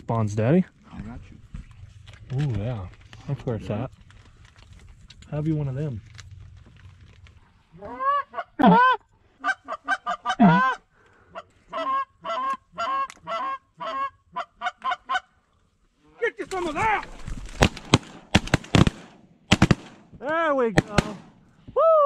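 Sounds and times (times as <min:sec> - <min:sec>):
geese honking and clucking: 0:07.7 - 0:15.4
shotgun shots: 0:17.5 - 0:20.1, 0:20.8 - 0:21.4.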